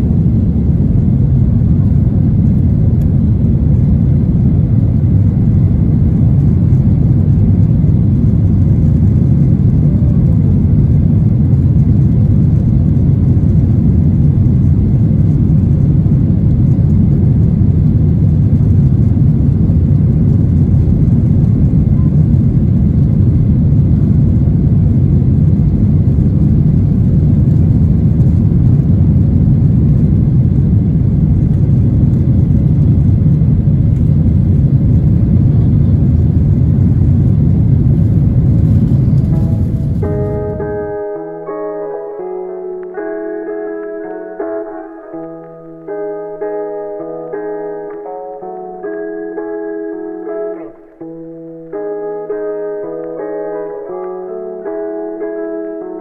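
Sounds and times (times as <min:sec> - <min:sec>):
jet engine cabin rumble: 0:00.0 - 0:41.6.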